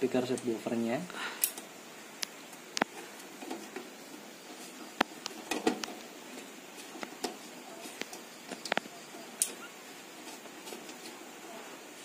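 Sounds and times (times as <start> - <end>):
speaker cable clicks and scrapes: 2.2 - 9.6.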